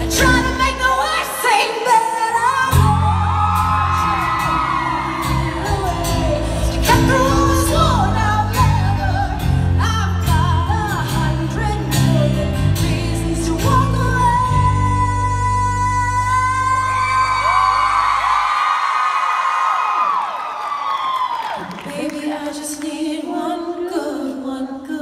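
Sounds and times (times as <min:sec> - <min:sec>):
woman singing pop ballad: 0:00.0 - 0:17.6.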